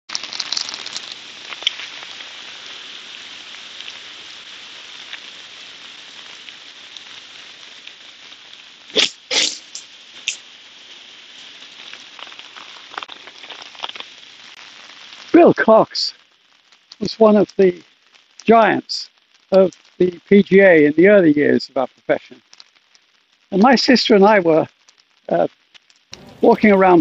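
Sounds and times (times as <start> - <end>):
rain falling: 0.1 - 27.0
short sharp noises: 8.9 - 10.4.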